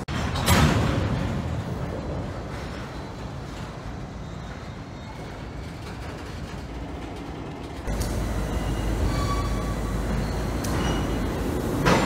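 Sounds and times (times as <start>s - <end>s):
freight train rumbling past: 1.2s - 12.0s
high wheel squeal: 7.9s - 12.0s.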